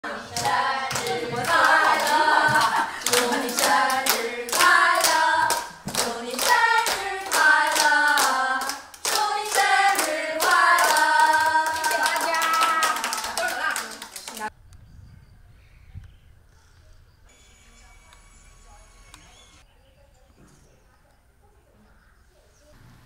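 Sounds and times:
women singing together: 0.0s - 14.0s
rhythmic hand clapping: 0.0s - 14.5s.

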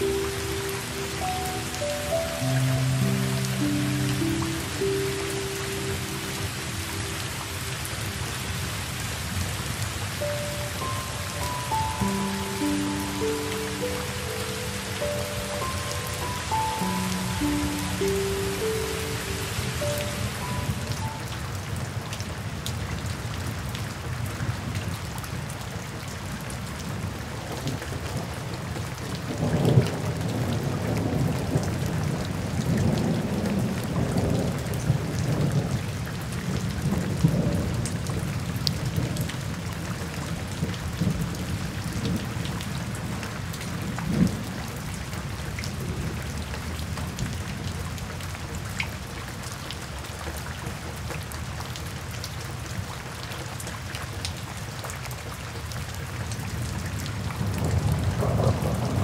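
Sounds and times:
rain splashing on pavement: 0.0s - 59.0s
thunder rumbling: 57.4s - 59.0s.

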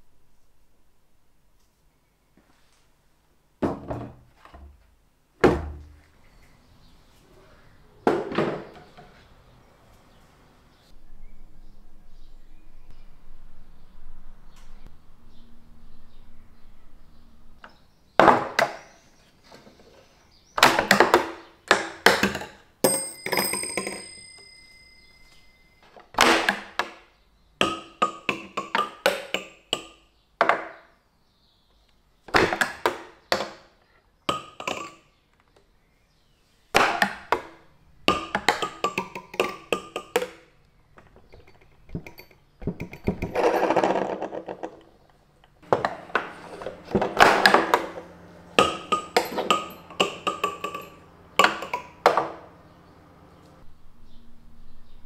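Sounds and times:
steel balls clattering through pins: 20.6s - 26.8s, 38.1s - 40.5s, 41.1s - 52.3s
small brass bell ringing: 22.8s - 25.9s.

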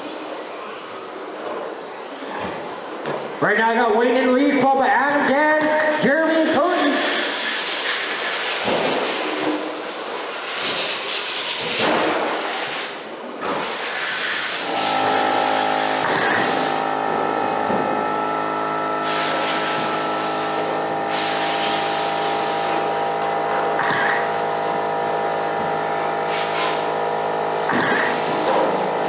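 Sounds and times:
steady multi-tone hum: 0.0s - 29.0s
electric motor whine: 14.6s - 29.0s.

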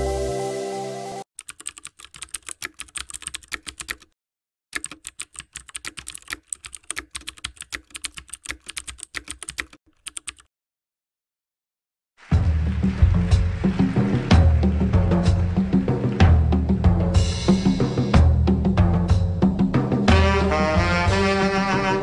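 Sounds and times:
music: 0.0s - 1.3s, 12.2s - 22.0s
keyboard typing clicks: 1.4s - 4.2s, 4.8s - 10.5s.

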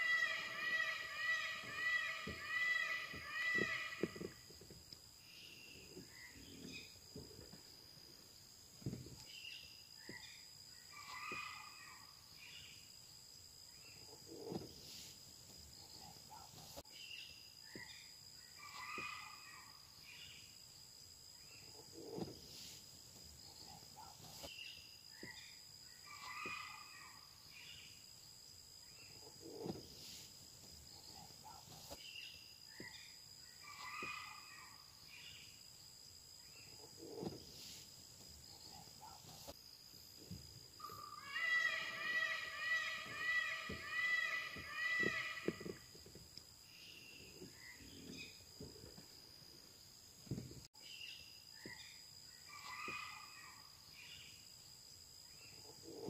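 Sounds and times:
bird calling: 0.0s - 4.6s, 17.7s - 20.3s, 32.7s - 35.4s, 40.8s - 45.9s
low bird calls: 0.0s - 4.6s, 8.8s - 12.8s, 15.8s - 20.5s, 23.5s - 28.0s, 30.9s - 35.5s, 40.8s - 49.0s, 51.6s - 54.4s
high insect drone: 0.0s - 56.0s.

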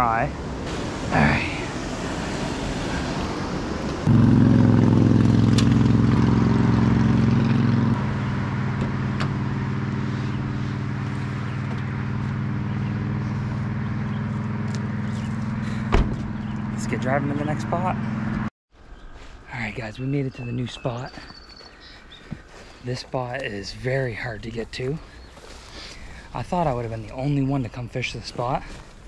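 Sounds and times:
river water rushing: 0.6s - 4.0s.

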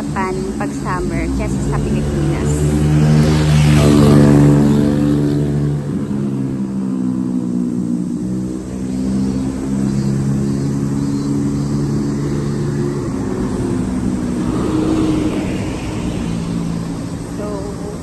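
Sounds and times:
passing vehicle rush: 0.0s - 18.0s
vehicle engine droning: 0.0s - 18.0s.

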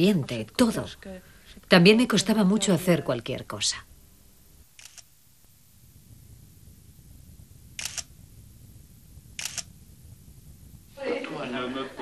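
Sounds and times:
faint low hum: 0.0s - 12.0s
camera shutter clicking: 4.8s - 5.1s, 7.8s - 8.1s, 9.4s - 9.7s.

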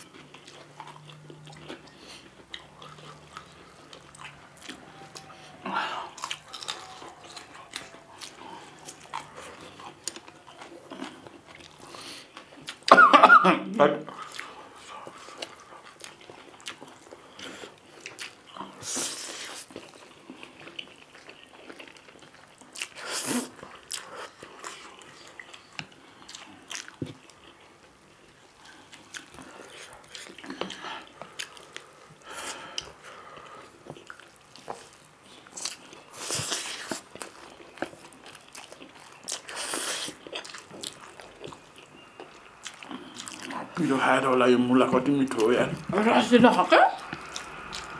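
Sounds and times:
chewing with small clicks: 0.0s - 12.9s, 14.1s - 18.9s, 19.5s - 43.9s, 47.0s - 47.9s.

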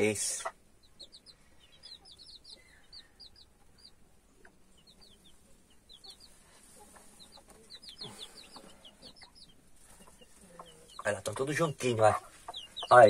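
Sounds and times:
chicks peeping: 0.0s - 13.0s.

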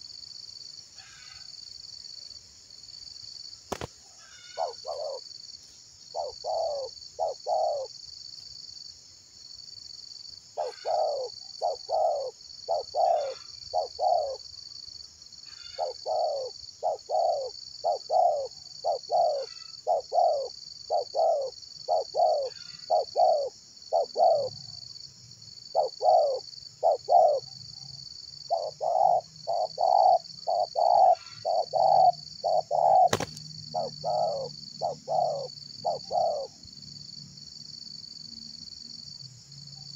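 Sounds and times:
high pulsing insect drone: 0.0s - 39.9s
doves cooing: 3.7s - 5.2s, 6.1s - 7.9s, 10.6s - 14.4s, 15.7s - 24.6s, 25.7s - 27.5s, 28.5s - 36.6s.

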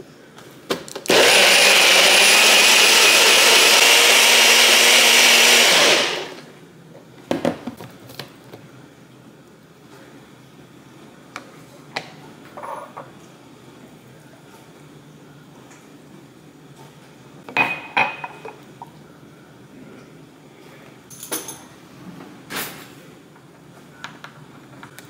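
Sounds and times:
blender running: 1.1s - 6.5s.

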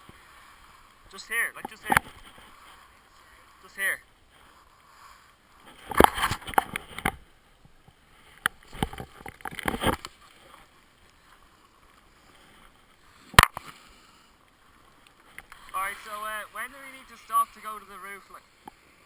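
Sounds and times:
skis scraping on snow: 0.0s - 6.5s, 15.6s - 19.0s.

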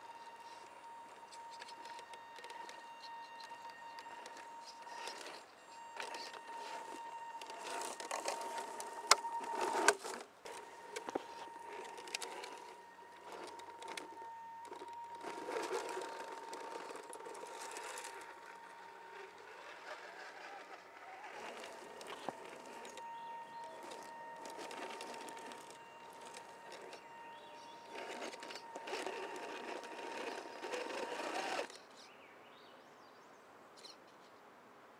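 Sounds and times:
toy truck motor whine: 0.0s - 31.8s
twigs and leaves crackling: 4.0s - 31.7s.

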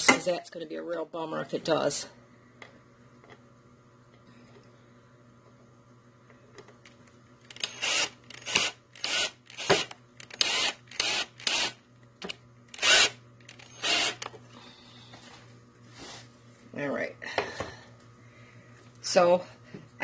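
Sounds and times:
steady low hum: 0.0s - 20.0s
cordless drill driving screw: 7.5s - 11.8s, 12.7s - 14.3s.

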